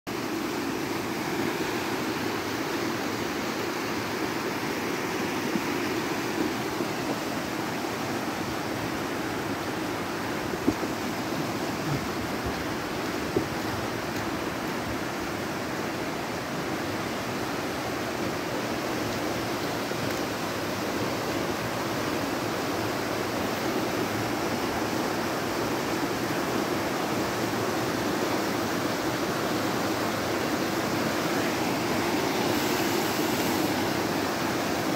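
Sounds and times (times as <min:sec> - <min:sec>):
stream rushing in flood: 0:00.1 - 0:34.9.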